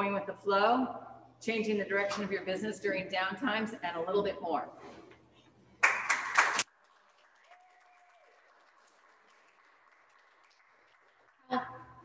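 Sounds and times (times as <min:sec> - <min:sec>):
audience applauding: 0:05.8 - 0:11.9.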